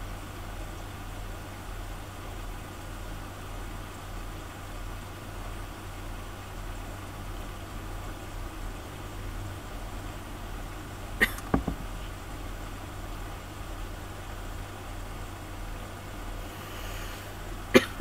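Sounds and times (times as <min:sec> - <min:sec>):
even hiss: 0:16.1 - 0:18.0.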